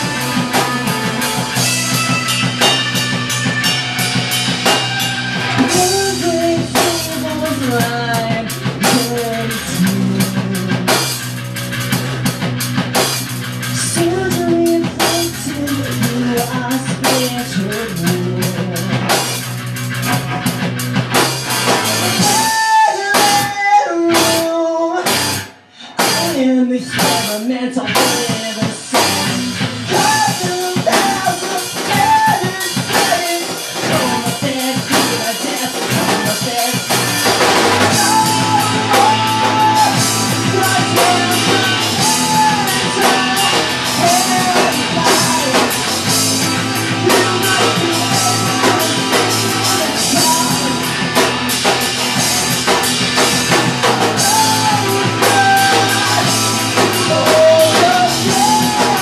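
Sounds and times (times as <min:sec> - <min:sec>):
rock band playing: 0:00.0 - 0:59.0.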